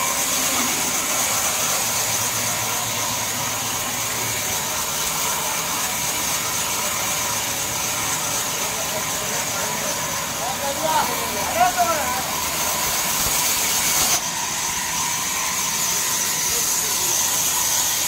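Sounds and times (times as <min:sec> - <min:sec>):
band saw cutting wood: 0:00.0 - 0:18.0
machine drone: 0:00.0 - 0:18.0.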